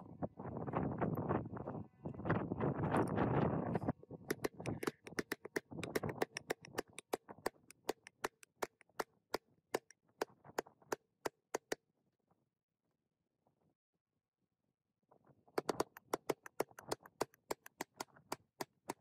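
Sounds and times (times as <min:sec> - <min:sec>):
hammer tapping metal drift: 0:04.3 - 0:09.0.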